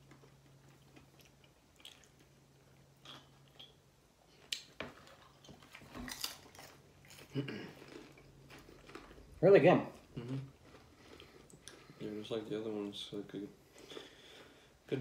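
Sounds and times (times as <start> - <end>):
crunchy snack being chewed: 4.4 - 12.0.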